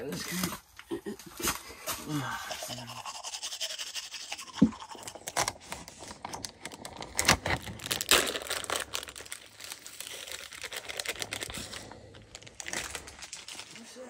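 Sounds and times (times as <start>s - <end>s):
plastic bag crinkling: 5.0s - 14.0s.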